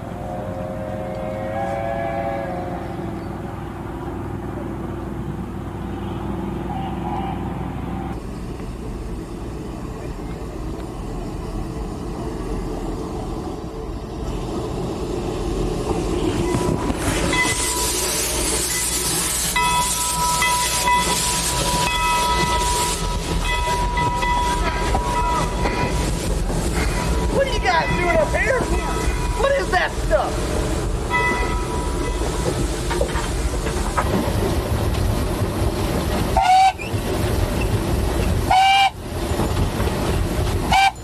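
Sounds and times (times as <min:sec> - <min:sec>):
steam locomotive running: 0:00.0 - 0:41.0
hiss of venting steam: 0:17.0 - 0:23.4.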